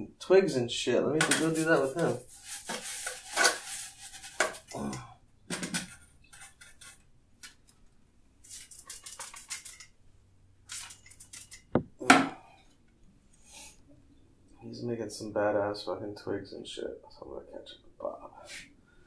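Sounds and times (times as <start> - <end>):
brush strokes on canvas: 1.4 - 4.7.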